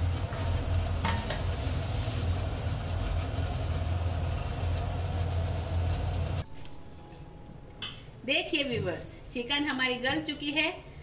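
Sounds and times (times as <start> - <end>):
gas burner rumble and hiss: 0.0 - 6.4.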